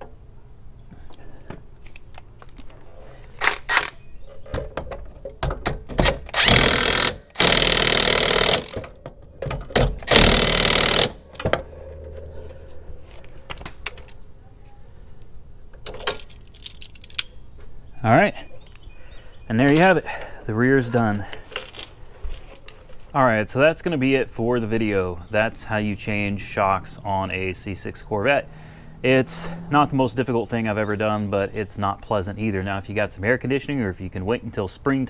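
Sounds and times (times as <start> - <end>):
impact wrench hammering: 5.6 - 11.7
tools clinking: 15.7 - 17.4.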